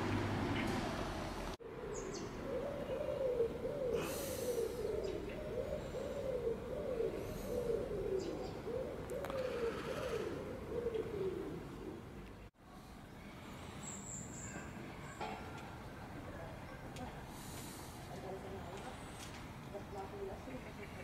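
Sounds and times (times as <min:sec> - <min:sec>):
pigeon cooing: 0:01.6 - 0:12.2.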